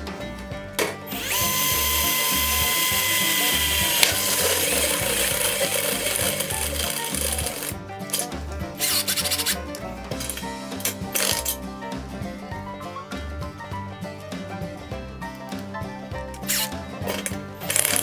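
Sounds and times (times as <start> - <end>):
power drill grinding through metal: 1.1 - 8.2, 16.4 - 18.0.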